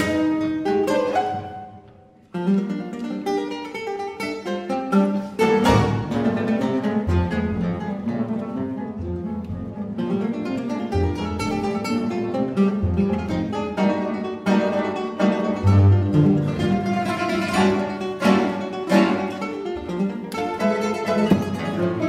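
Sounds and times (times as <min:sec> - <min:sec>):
classical guitar ensemble: 0:00.0 - 0:22.0
double bass: 0:04.5 - 0:22.0.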